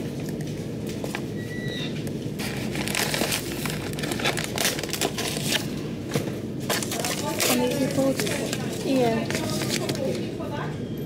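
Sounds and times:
crinkling and rustling handling noise: 0:02.1 - 0:10.5.

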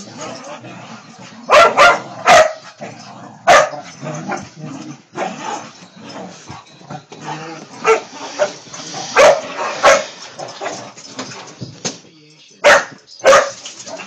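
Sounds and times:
dogs growling: 0:00.0 - 0:11.4
dogs barking: 0:01.4 - 0:04.6, 0:07.8 - 0:10.9, 0:12.6 - 0:14.0.

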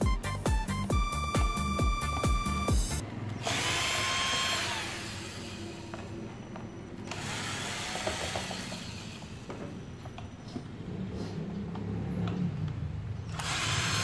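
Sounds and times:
cordless drill motor winding down: 0:03.4 - 0:06.3, 0:07.0 - 0:09.6, 0:13.3 - 0:14.0.

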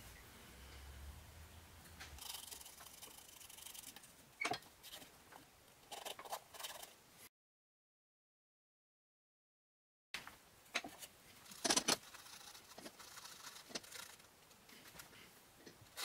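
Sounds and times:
low hum: 0:00.0 - 0:02.2.

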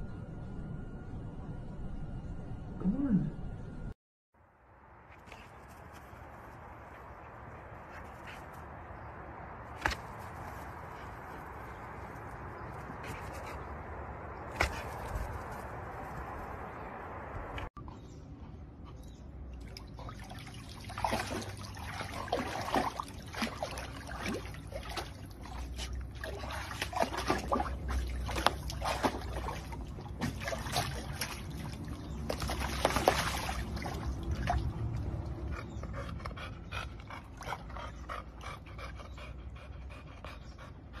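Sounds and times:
dog splashing in water: 0:19.7 - 0:35.2
dog panting: 0:35.5 - 0:41.0.

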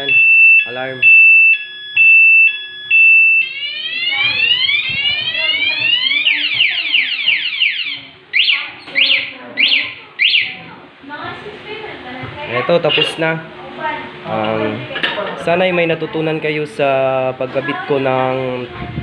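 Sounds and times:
motorcycle alarm siren: 0:00.0 - 0:10.7, 0:12.8 - 0:13.2.

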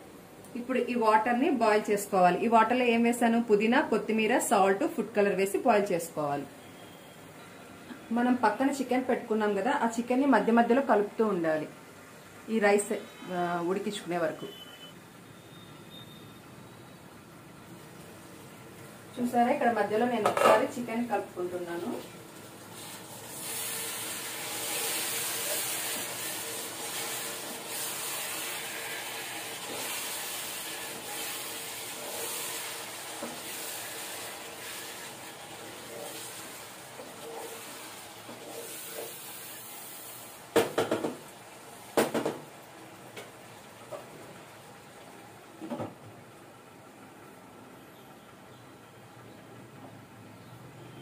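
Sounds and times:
food sizzling in pot: 0:21.6 - 0:44.7
spatula scraping pot: 0:22.8 - 0:39.3.

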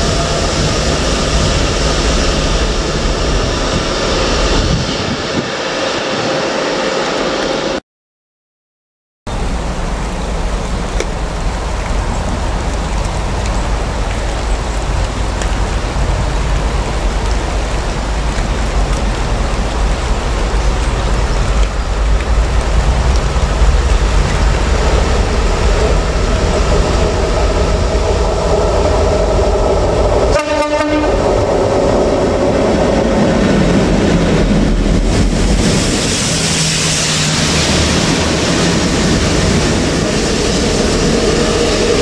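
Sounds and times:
rain hissing: 0:00.0 - 0:06.0, 0:09.3 - 0:42.0
diesel locomotive engines rumbling: 0:00.0 - 0:07.8, 0:09.3 - 0:42.0.

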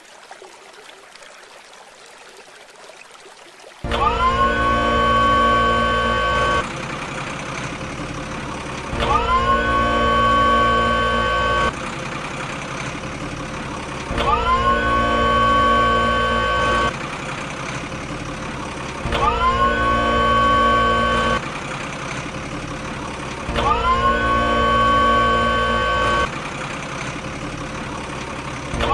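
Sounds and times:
whining engine rising in pitch: 0:03.9 - 0:06.9, 0:07.6 - 0:11.8, 0:13.0 - 0:17.0, 0:18.0 - 0:21.6, 0:22.3 - 0:26.6, 0:27.2 - 0:28.9
rough engine rumble: 0:03.9 - 0:28.9.

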